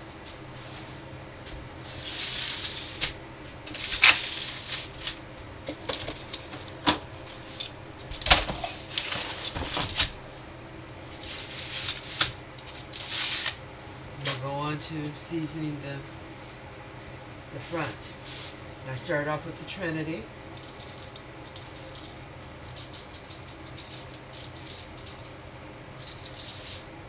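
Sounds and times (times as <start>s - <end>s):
steady low hum: 0.0s - 27.0s
foil pans crinkling: 2.0s - 10.2s.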